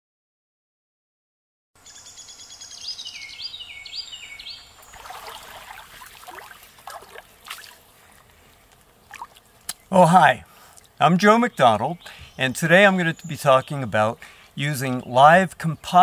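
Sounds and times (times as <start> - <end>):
songbird singing: 1.8 - 16.0
stream trickling: 4.4 - 10.0.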